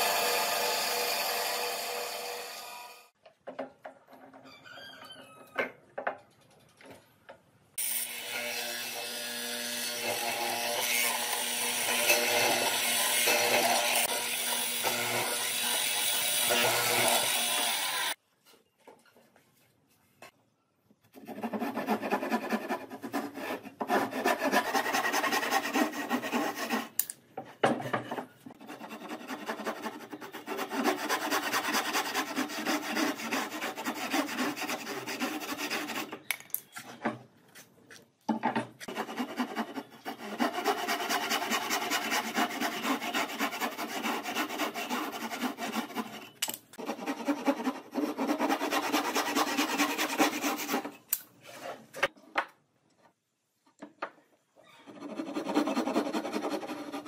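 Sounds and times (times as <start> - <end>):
hand saw cutting wood: 8.0 - 18.2, 21.2 - 27.0, 28.5 - 36.2, 38.8 - 51.6, 54.9 - 57.0.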